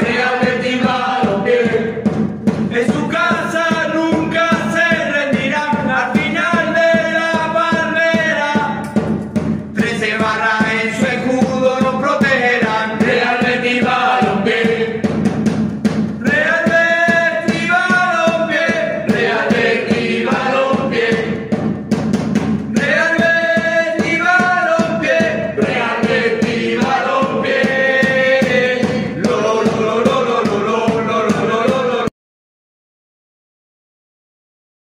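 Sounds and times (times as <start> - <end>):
football supporters chanting: 0.0 - 2.0, 9.8 - 15.0, 16.2 - 21.4, 22.7 - 32.1
backing music: 0.0 - 32.1.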